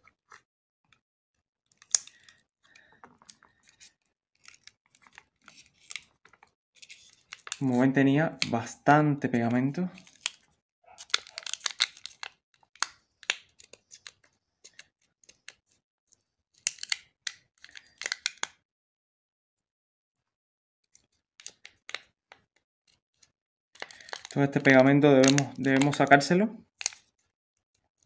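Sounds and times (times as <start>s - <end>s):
adhesive strips tearing and crackling: 1.7s - 2.2s, 3.8s - 6.2s, 6.8s - 7.6s, 10.0s - 14.9s, 16.6s - 17.1s, 23.8s - 26.2s, 26.8s - 27.1s.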